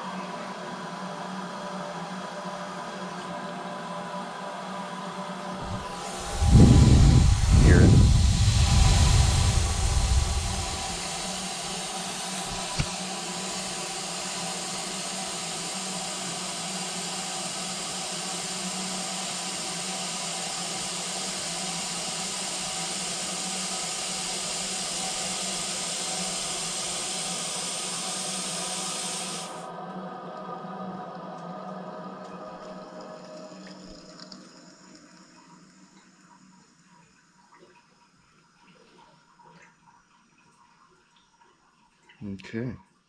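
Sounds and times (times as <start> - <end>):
faint steady hum: 0.0 - 42.7
air vent hissing: 5.6 - 29.6.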